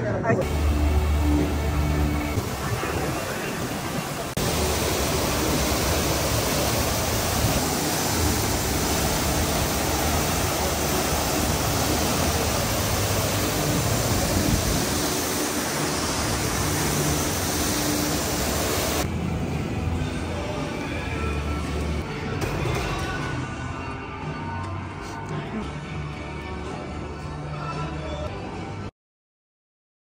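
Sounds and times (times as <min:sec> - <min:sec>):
waterfall rushing into a pool: 0:00.4 - 0:19.1.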